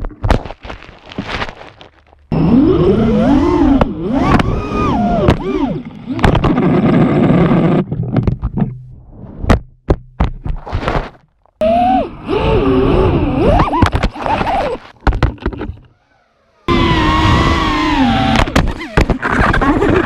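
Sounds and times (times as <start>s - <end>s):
low hum: 2.2s - 9.8s
drone motors whining: 2.3s - 7.8s, 11.6s - 14.9s, 15.8s - 20.0s.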